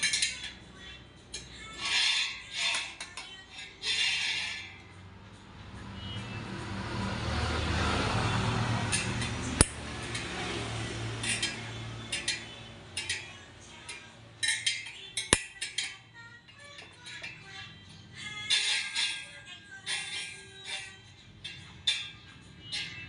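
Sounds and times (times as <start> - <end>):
spoke wrench metallic clinks: 0.0 - 4.9, 11.1 - 23.0.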